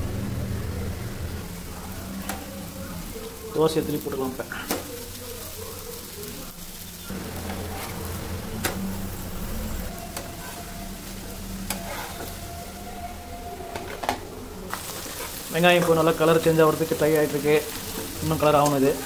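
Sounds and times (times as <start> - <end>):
frying sizzle: 0.0 - 19.0
metal spatula scraping a pan: 7.3 - 8.8, 9.6 - 12.5, 13.7 - 16.0.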